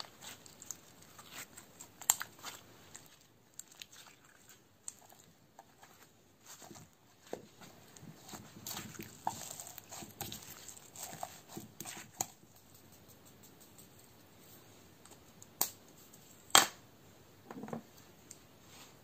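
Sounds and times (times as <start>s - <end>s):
slime crackling and popping: 0.0s - 3.1s
soft rustle: 0.0s - 14.9s, 18.0s - 19.0s.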